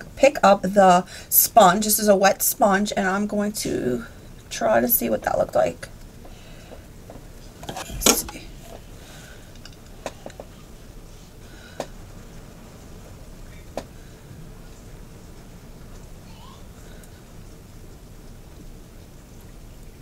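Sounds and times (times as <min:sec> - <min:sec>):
metal mirror clattering: 0:07.6 - 0:08.9.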